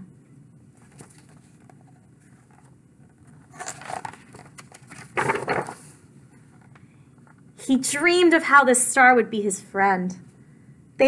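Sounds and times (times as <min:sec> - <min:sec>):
book page rustling: 0:00.7 - 0:07.3.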